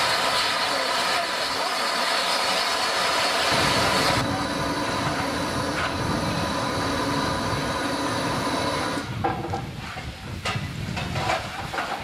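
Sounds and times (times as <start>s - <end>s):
steam locomotive hissing: 0.0s - 10.9s.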